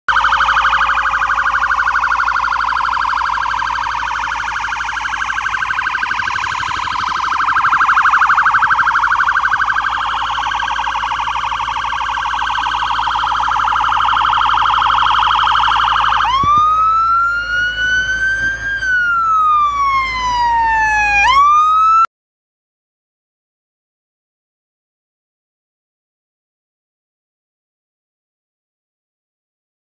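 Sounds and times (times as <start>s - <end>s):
fire engine siren: 0.1s - 22.1s.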